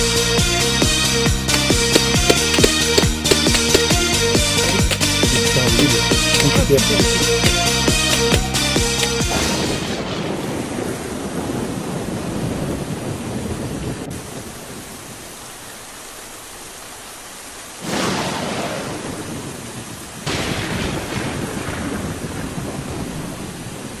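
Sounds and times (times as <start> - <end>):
rain hissing: 0.0 - 24.0
thunderclap rolling: 9.2 - 14.1, 17.8 - 24.0.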